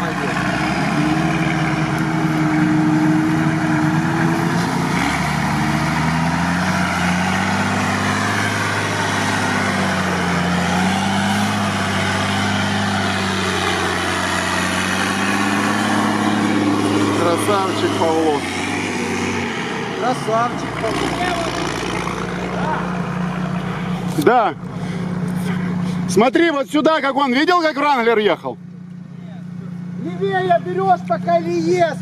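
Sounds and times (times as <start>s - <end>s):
truck engine revving: 0.0s - 32.0s.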